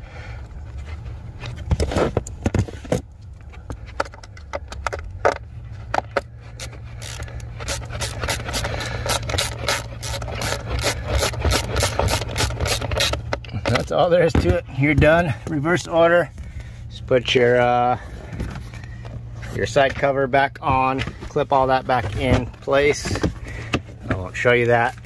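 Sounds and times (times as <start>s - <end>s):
low steady hum: 0.0s - 25.0s
screwdriver scraping plastic: 6.0s - 13.8s.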